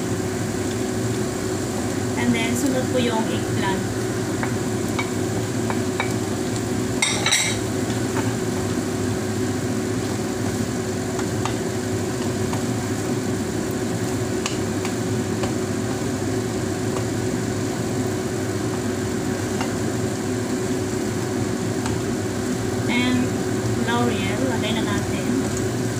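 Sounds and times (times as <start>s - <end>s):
steady background hum: 0.0s - 25.9s
spatula stirring vegetables in pan: 3.9s - 23.8s.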